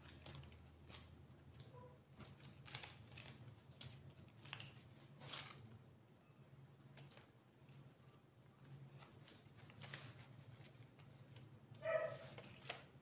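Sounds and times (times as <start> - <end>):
dry leaf strips rustling: 0.0 - 5.8, 8.7 - 13.0.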